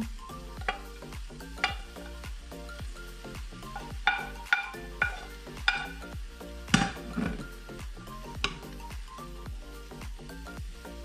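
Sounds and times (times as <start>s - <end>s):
background music: 0.0s - 11.0s
meat sizzling in a pan: 0.0s - 11.0s
wooden spoon clinking on plate: 3.8s - 6.0s.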